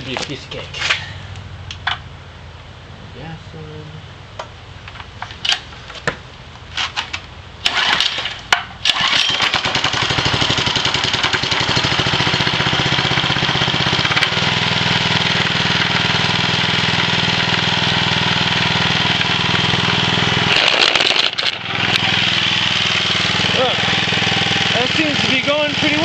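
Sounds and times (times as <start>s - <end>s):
engine cranking: 7.6s - 12.1s, 20.5s - 26.0s
small engine running: 7.6s - 26.0s.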